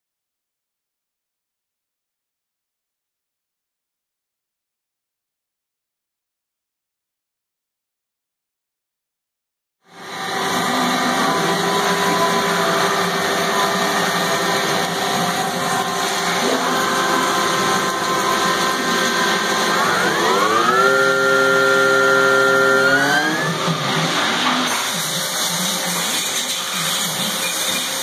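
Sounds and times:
machine spindle whining: 9.9 - 28.0.

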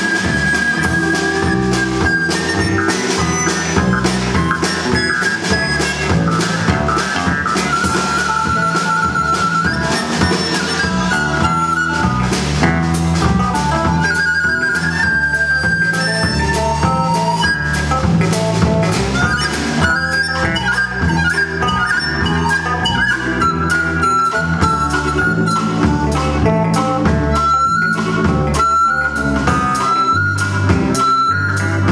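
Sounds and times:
long held high melody notes: 0.0 - 18.2
bass guitar: 0.0 - 31.9
drum kit: 0.0 - 31.9
electric guitar: 0.0 - 31.9.

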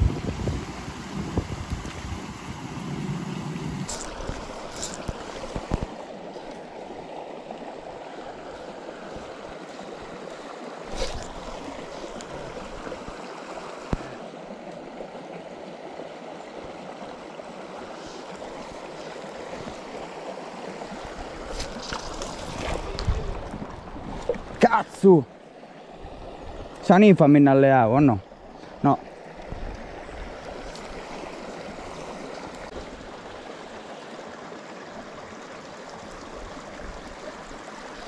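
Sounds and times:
stream running over stones: 0.0 - 38.0.

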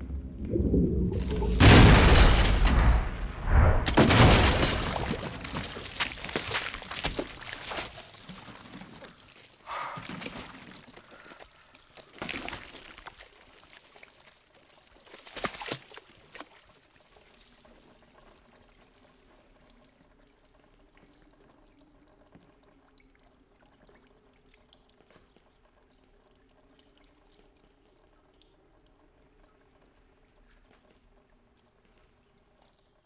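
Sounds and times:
low steady hum: 0.0 - 8.1
sludge splat: 1.1 - 9.2, 12.1 - 13.4
thick liquid dripping and trickling: 5.6 - 33.0.

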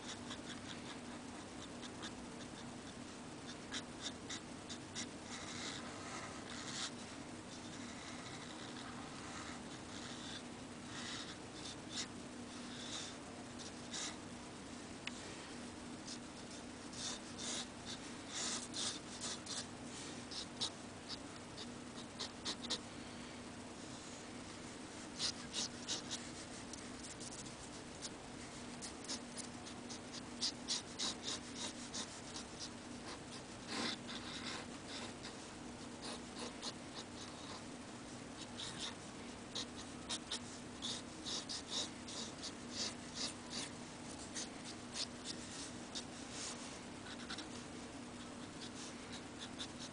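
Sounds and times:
faint low hum: 0.0 - 49.9
pen nib scratching paper: 3.5 - 12.1, 16.0 - 19.7, 25.2 - 35.4, 36.0 - 37.6, 38.4 - 47.6.

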